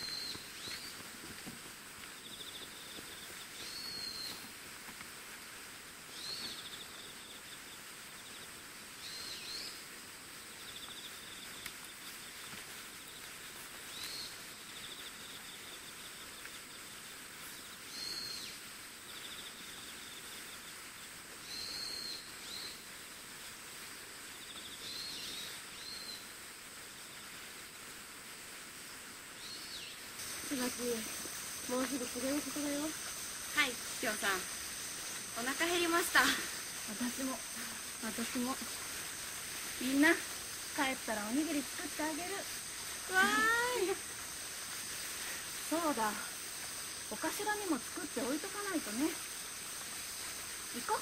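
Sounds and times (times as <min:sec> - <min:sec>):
high bird calls: 0:00.0 - 0:01.0, 0:02.2 - 0:04.4
steady hiss: 0:00.0 - 0:51.0.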